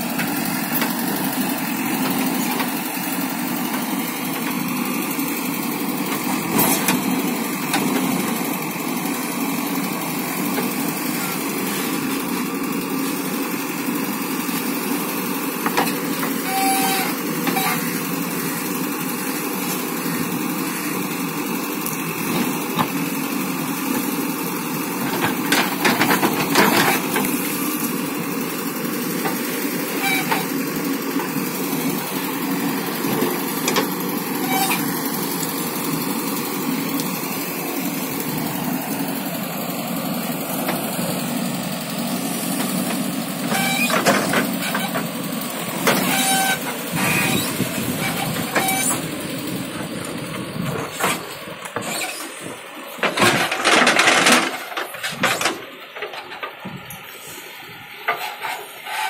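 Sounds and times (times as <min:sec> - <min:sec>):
backhoe diesel engine running: 0:00.0 - 0:59.0.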